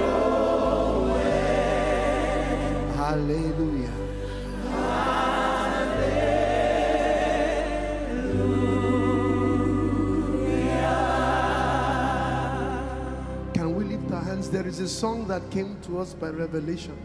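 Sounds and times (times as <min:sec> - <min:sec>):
voices singing with vibrato: 0:00.0 - 0:13.5
sustained low keyboard chords: 0:00.0 - 0:17.0.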